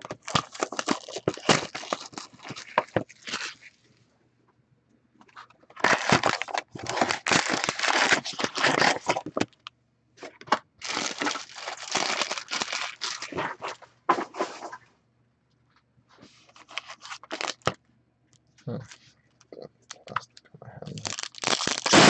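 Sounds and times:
foil packs crinkling: 0.0s - 3.8s, 5.7s - 9.6s, 10.8s - 13.8s, 16.5s - 17.7s, 20.9s - 22.0s.

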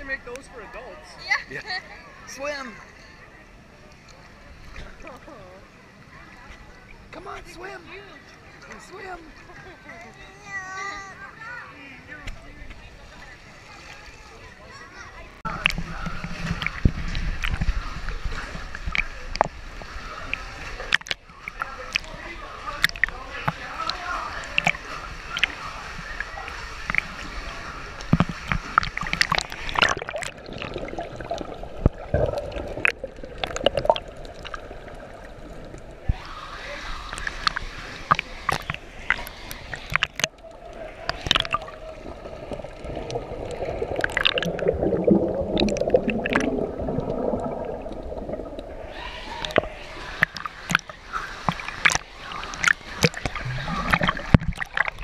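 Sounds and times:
muffled churning water: 0.0s - 55.0s
seawater sloshing and splashing: 15.5s - 55.0s.

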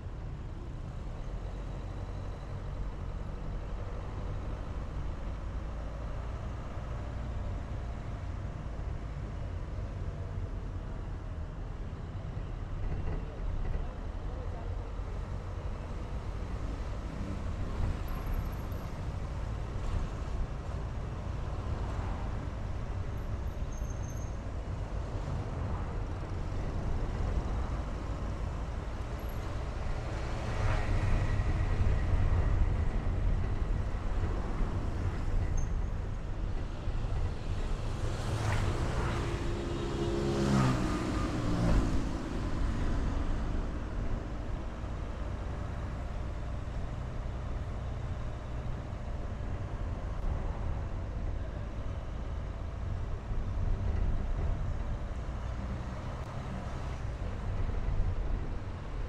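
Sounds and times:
car road and engine noise: 0.0s - 59.0s
vehicles whooshing past: 36.8s - 44.6s.

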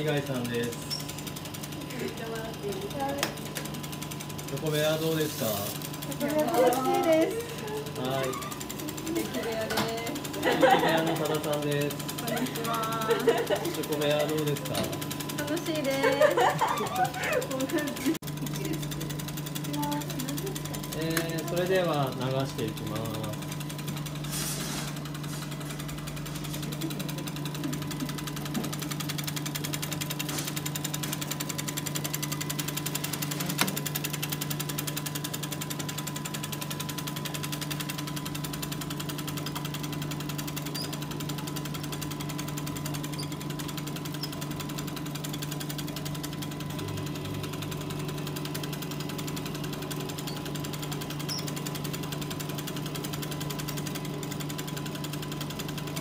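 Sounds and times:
machine hum: 0.0s - 56.0s.

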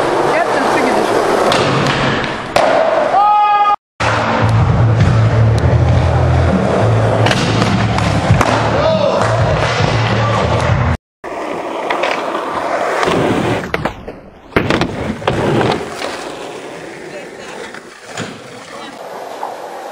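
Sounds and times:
skateboard wheels rolling: 10.4s - 19.9s
skateboard landing clacks: 13.0s - 16.3s.

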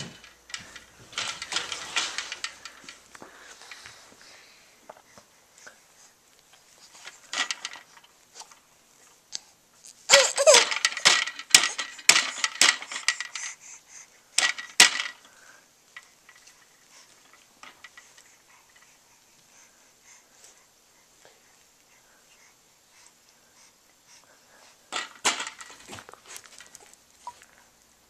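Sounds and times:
plastic toys clattering: 0.0s - 4.0s, 6.8s - 8.6s, 10.1s - 13.6s, 14.4s - 18.9s, 24.9s - 27.4s.

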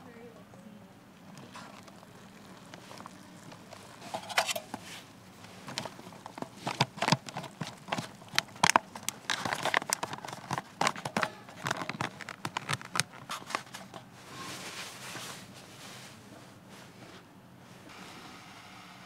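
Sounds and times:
foil pouch crinkling: 1.4s - 14.1s.

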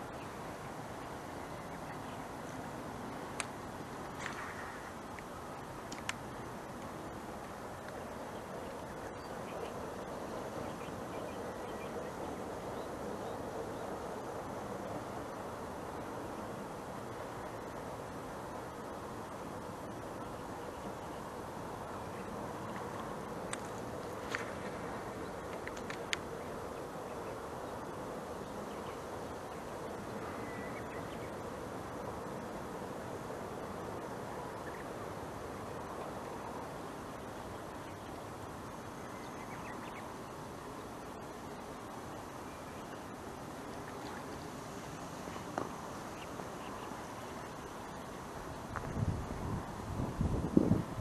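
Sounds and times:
outdoor background noise: 0.0s - 51.0s
steady hiss: 0.0s - 51.0s
light clicks: 4.2s - 6.2s, 25.5s - 26.2s
faint bird calls: 30.0s - 31.3s.

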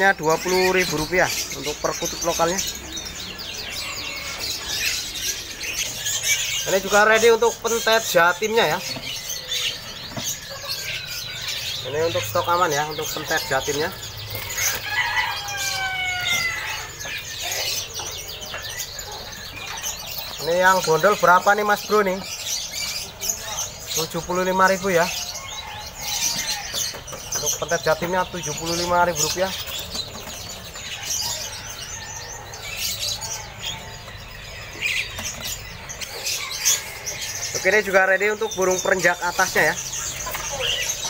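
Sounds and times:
caged birds chirping: 0.0s - 41.0s
rooster crowing: 3.6s - 4.8s, 14.5s - 17.2s, 25.2s - 27.0s, 30.9s - 34.1s.

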